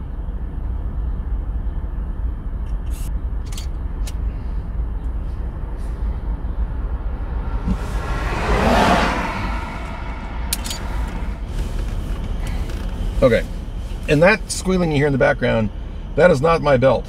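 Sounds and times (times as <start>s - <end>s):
car interior rumble: 0.0s - 17.0s
rush of noise: 5.8s - 12.8s.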